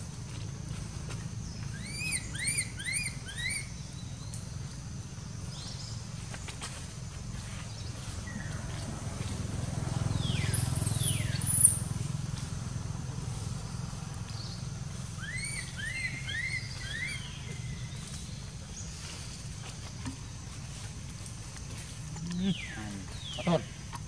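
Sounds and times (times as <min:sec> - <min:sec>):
infant monkey squeaky calls: 0:01.8 - 0:03.8, 0:15.2 - 0:17.3.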